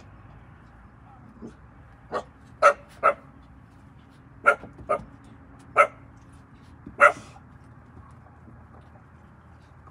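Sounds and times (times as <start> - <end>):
puppies barking: 2.1 - 3.3, 4.4 - 6.1, 7.0 - 7.4.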